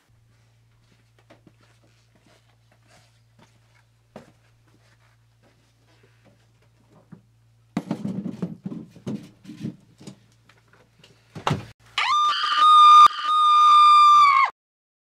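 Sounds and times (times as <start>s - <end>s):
high-pitched scream: 12.0s - 14.6s.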